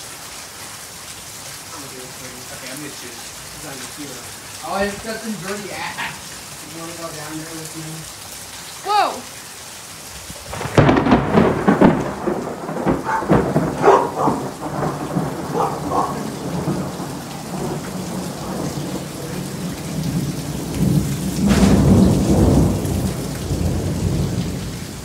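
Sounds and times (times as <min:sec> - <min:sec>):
steady rain falling: 0:00.0 - 0:25.0
thunder cracking and rumbling: 0:10.5 - 0:25.0.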